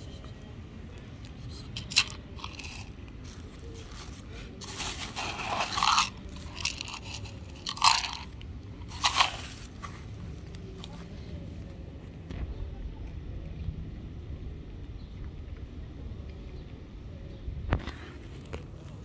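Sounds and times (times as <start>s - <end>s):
cat crunching dry kibble: 0.9s - 11.0s.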